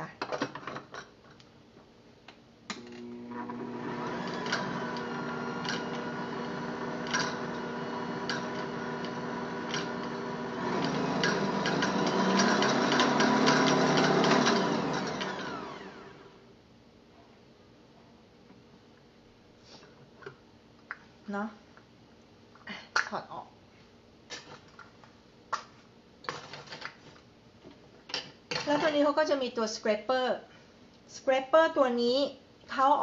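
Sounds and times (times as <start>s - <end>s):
stand mixer motor running: 3.0s - 16.3s.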